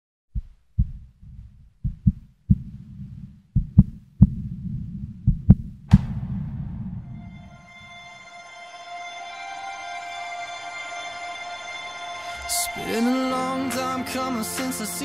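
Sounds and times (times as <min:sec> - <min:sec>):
muffled heartbeat thumps: 0:00.3 - 0:07.4
sharp bright hit: 0:05.9 - 0:08.5.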